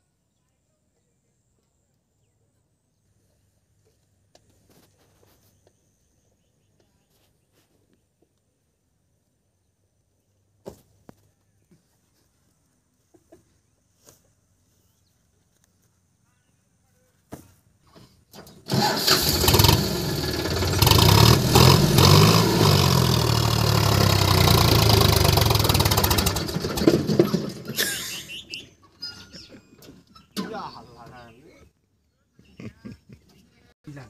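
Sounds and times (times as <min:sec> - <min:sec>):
tractor diesel engine revving: 0:18.6 - 0:28.5.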